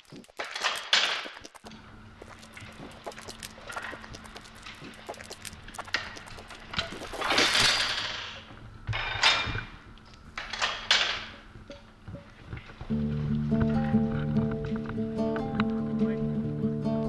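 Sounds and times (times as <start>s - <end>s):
rushes of water spray: 2.5s - 7.9s.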